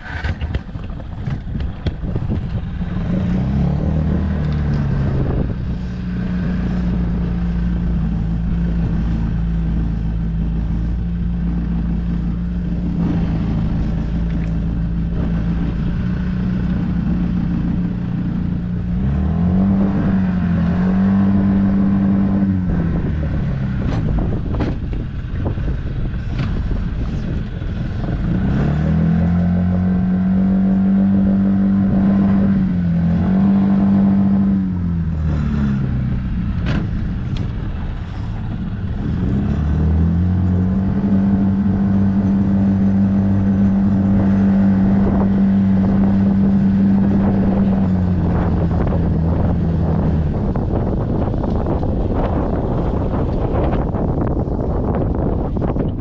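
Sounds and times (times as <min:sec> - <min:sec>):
outboard motor running: 0:00.0 - 0:56.0
wind noise on microphone: 0:00.0 - 0:56.0.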